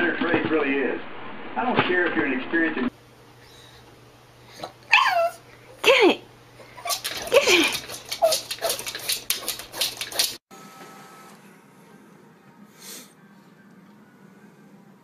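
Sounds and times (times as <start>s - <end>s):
dog clattering and scratching: 6.8s - 10.4s.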